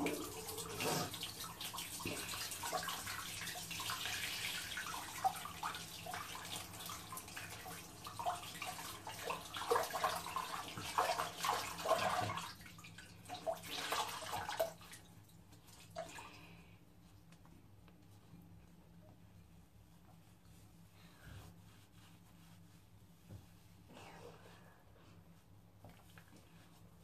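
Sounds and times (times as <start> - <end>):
water running from a tap: 0.0 - 15.0.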